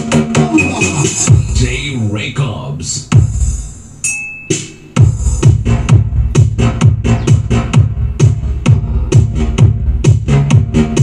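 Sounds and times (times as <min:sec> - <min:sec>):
electronic dance music: 0:00.0 - 0:03.8, 0:04.5 - 0:11.0.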